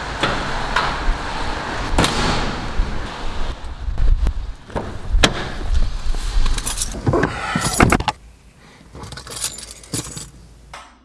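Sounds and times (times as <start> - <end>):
rustling of person climbing in: 3.9 - 8.2, 8.9 - 10.4.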